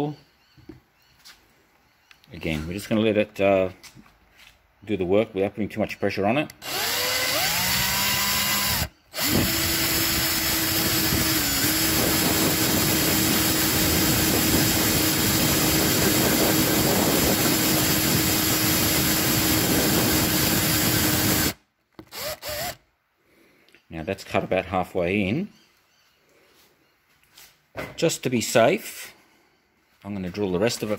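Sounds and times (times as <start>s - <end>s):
drill cutting into plastic: 6.6s - 22.8s.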